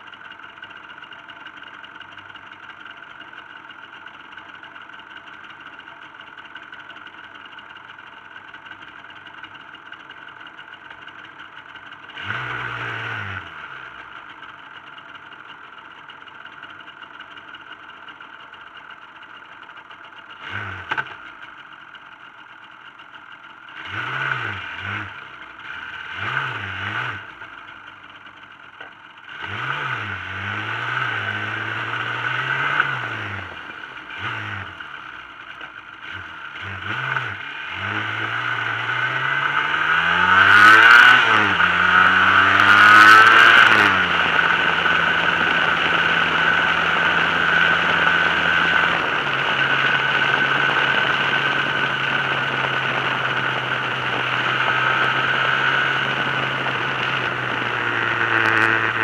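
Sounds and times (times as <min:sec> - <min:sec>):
motorcycle engine accelerating: 0:00.0 - 0:21.7, 0:23.6 - 0:59.0
wind and road noise: 0:36.9 - 0:59.0.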